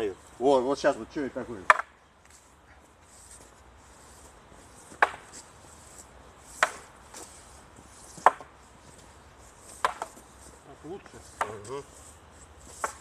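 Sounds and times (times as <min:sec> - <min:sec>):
wooden staffs clacking: 0:01.6 - 0:01.9, 0:04.8 - 0:05.3, 0:06.5 - 0:07.3, 0:08.0 - 0:08.5, 0:09.6 - 0:10.5, 0:11.2 - 0:11.9, 0:12.6 - 0:13.0.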